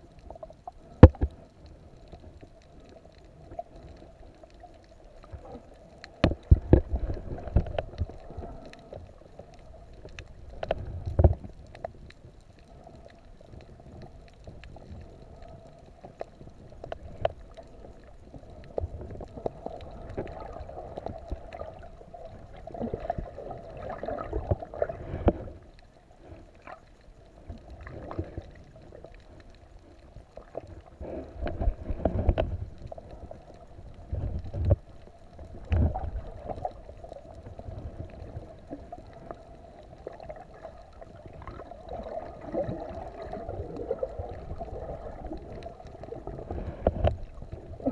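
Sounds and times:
faint steady hum: 0.0s - 47.9s
muffled underwater rumbling: 0.0s - 47.9s.

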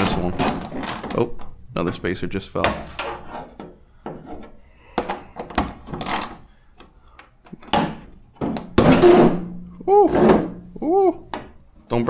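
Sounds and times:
hand tool scraping: 2.8s - 4.6s.

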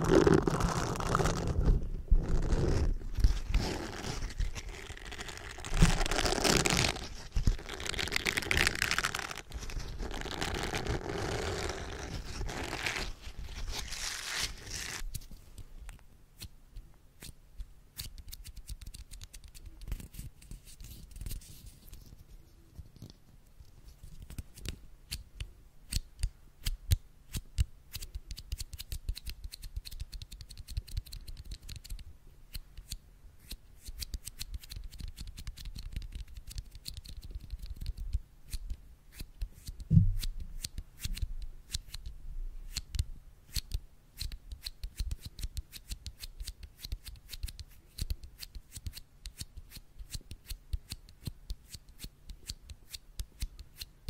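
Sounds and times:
scratchy crackle on microphone grille: 0.0s - 15.3s.

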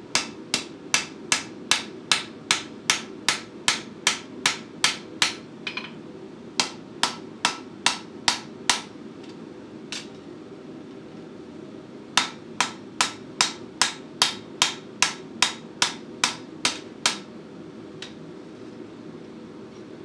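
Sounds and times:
hammer striking hot steel: 0.2s - 5.9s, 12.2s - 17.3s.

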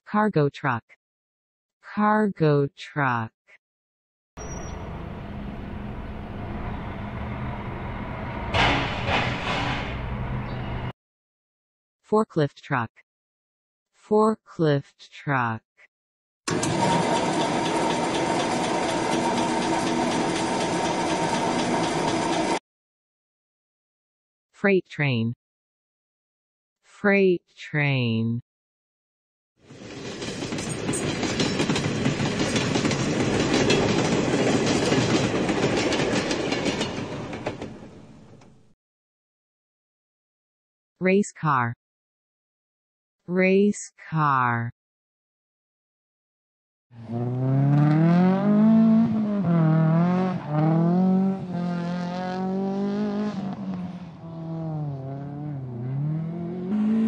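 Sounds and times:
tyre squeal: 4.4s - 4.9s
freight train rumbling: 16.5s - 22.6s, 29.7s - 38.5s
wheels clacking over rail joints: 16.5s - 22.6s, 29.8s - 38.5s
race car engine revving: 47.0s - 57.0s.

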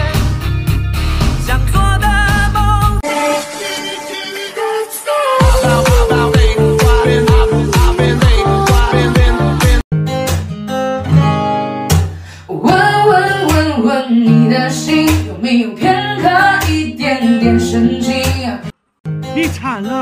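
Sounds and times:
acoustic guitar strumming: 0.5s - 20.0s
person singing: 1.4s - 9.8s, 12.4s - 18.7s.

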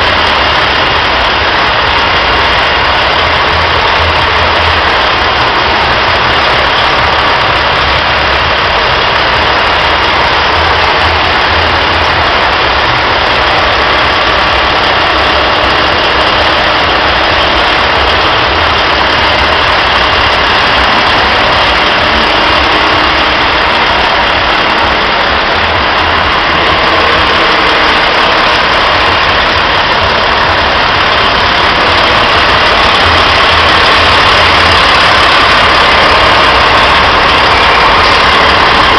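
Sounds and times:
heavy engine idling: 0.0s - 38.9s.

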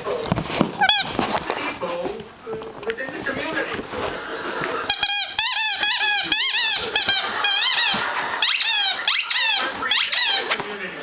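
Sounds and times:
dog toy squeaking: 0.8s - 1.2s, 4.9s - 10.6s.

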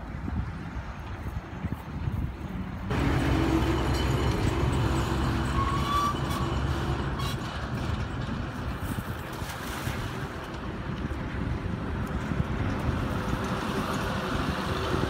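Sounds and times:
wind on microphone: 0.0s - 15.0s
truck engine running: 2.9s - 8.6s.

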